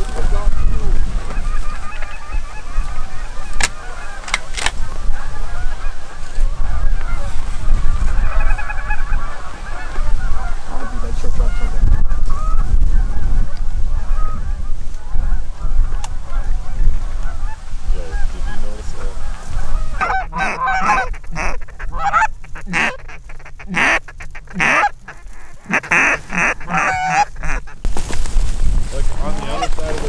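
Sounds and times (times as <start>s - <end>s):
distant geese chattering: 0.0s - 27.9s, 29.2s - 30.0s
wind rumbling on microphone: 0.0s - 30.0s
loud close goose honks: 0.2s - 4.4s, 8.1s - 11.8s, 19.2s - 27.9s.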